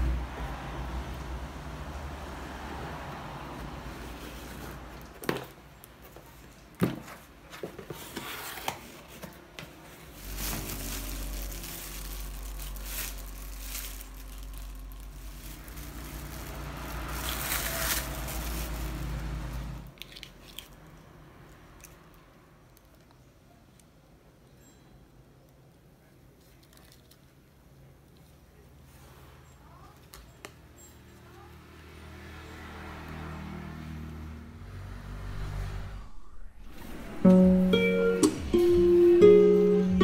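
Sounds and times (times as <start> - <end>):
paper and plastic rustling: 4.0 - 20.8, 26.4 - 27.4
packing tape peeling: 10.2 - 19.2.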